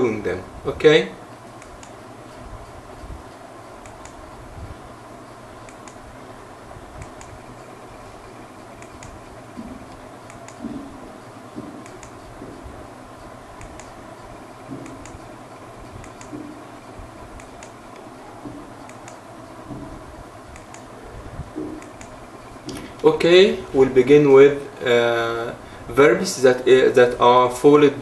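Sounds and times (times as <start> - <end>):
low room hiss: 0.0 - 28.0
computer key clicks: 13.6 - 14.0, 16.0 - 16.6, 20.5 - 20.9.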